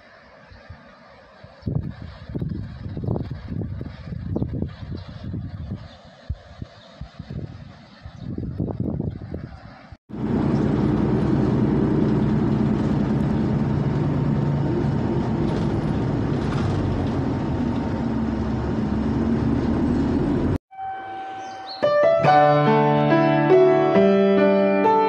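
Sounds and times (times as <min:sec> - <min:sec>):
bus engine rumble: 0:08.3 - 0:20.6
piano playing: 0:20.7 - 0:25.0.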